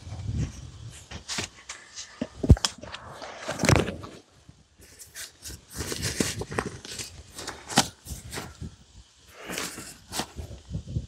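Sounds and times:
camping gear rustling and crinkling: 0:00.0 - 0:11.0.

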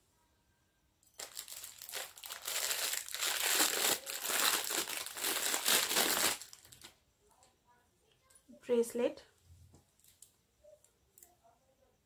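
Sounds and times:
packaging crumpling: 0:01.2 - 0:06.9.

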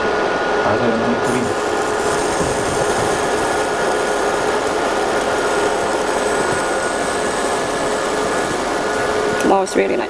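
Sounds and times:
constant hum: 0:00.0 - 0:10.0
laser marking machine hiss: 0:01.0 - 0:10.0.

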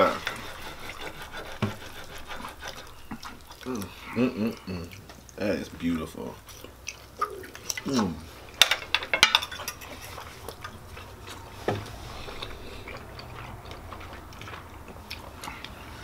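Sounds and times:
low room hum: 0:00.0 - 0:16.0
cutlery clinking on a plate: 0:08.6 - 0:10.2.

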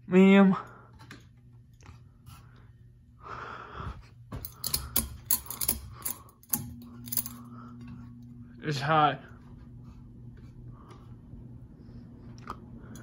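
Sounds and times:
fan motor humming: 0:00.0 - 0:13.0
metal pull chain rattling: 0:04.4 - 0:07.4.

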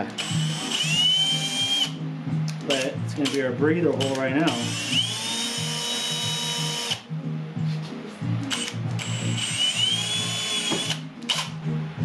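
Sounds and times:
cordless drill whining: 0:00.1 - 0:02.0, 0:04.0 - 0:07.0, 0:08.5 - 0:11.5.

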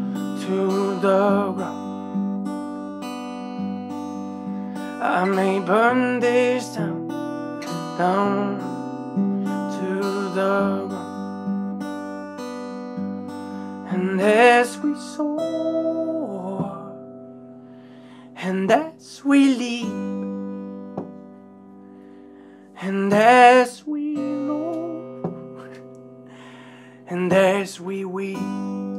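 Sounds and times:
acoustic guitar chords: 0:00.0 - 0:28.9
man singing: 0:00.1 - 0:01.9, 0:04.9 - 0:08.8, 0:09.6 - 0:11.2, 0:13.9 - 0:17.0, 0:18.4 - 0:20.2, 0:22.8 - 0:25.9, 0:27.0 - 0:28.9.

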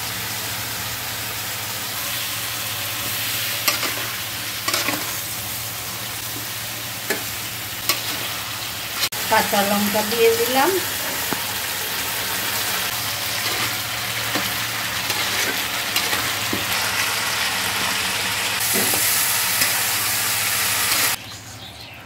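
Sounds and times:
food sizzling in hot oil: 0:00.0 - 0:21.2
metal spatula scraping: 0:03.0 - 0:05.2, 0:07.8 - 0:08.4, 0:13.2 - 0:16.7.

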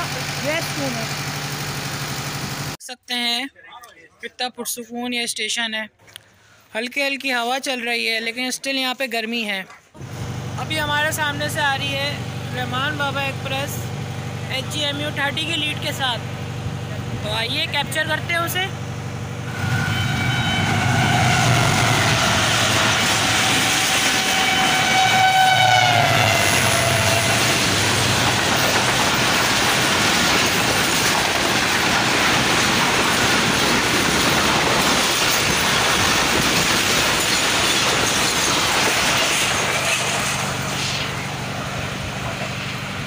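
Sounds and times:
train horn: 0:19.5 - 0:27.9
train wheels clattering on rails: 0:26.2 - 0:41.0.

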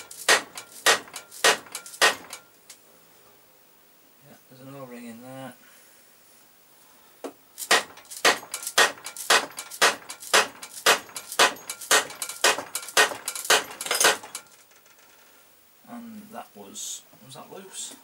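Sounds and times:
hammer striking metal: 0:00.0 - 0:02.5, 0:07.6 - 0:14.5.

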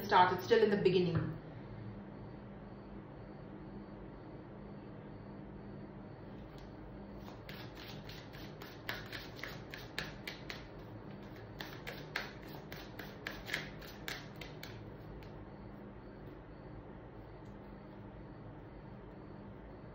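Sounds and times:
cards being shuffled: 0:06.6 - 0:14.8.

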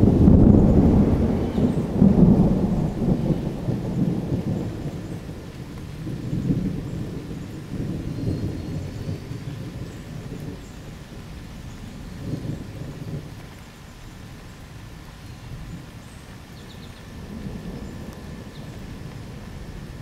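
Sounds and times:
thunder rumbling: 0:00.0 - 0:20.0.

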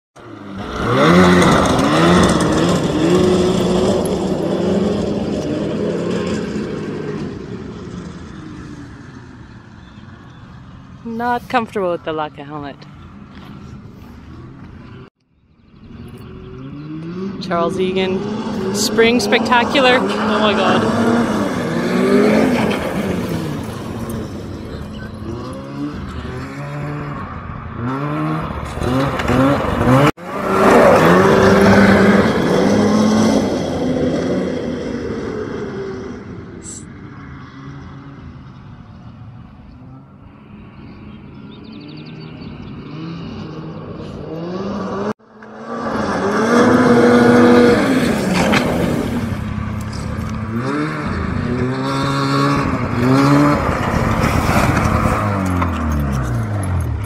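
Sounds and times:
snowmobile engine revving: 0:00.2 - 0:09.6, 0:16.2 - 0:38.2, 0:41.7 - 0:57.0
snowmobile engine running hard: 0:00.6 - 0:09.1, 0:16.7 - 0:27.2.

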